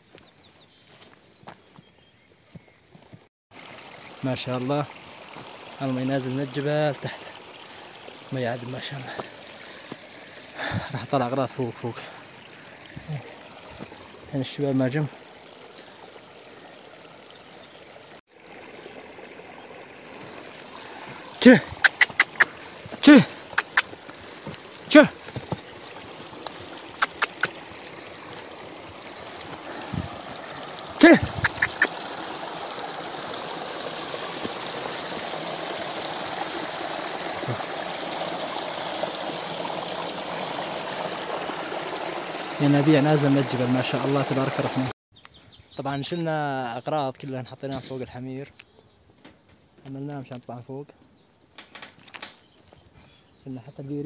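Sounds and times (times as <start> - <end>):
water rushing in a stream: 3.5 - 45.0.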